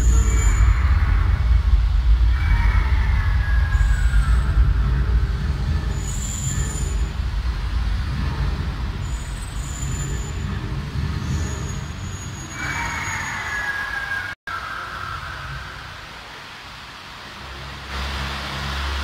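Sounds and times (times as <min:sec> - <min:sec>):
deep rumbling of flame jets: 0:00.0 - 0:13.2
faint high hissing tones: 0:00.0 - 0:19.0.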